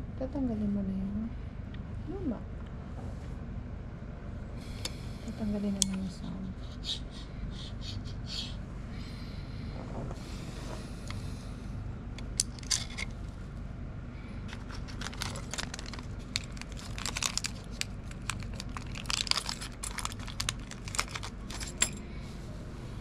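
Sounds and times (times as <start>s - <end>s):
steady low hum: 0.0s - 23.0s
plastic and metal parts clicking: 12.2s - 13.1s, 14.5s - 22.0s.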